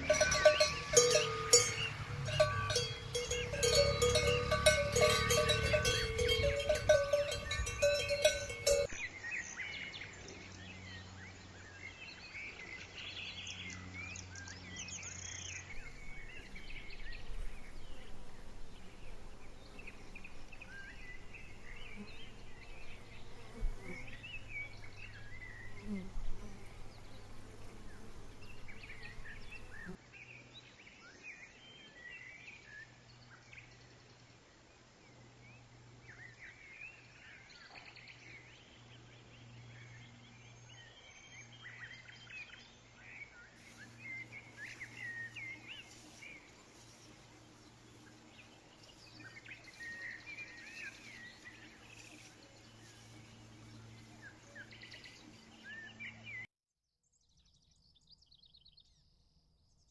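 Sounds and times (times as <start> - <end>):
cowbell clanging: 0.0 - 9.0.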